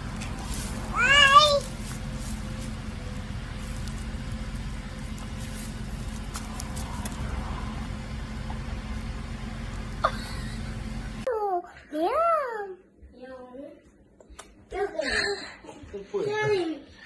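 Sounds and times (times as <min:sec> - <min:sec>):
rustles and clicks in dry leaves: 0:00.0 - 0:10.0
low outdoor rumble: 0:00.0 - 0:13.8.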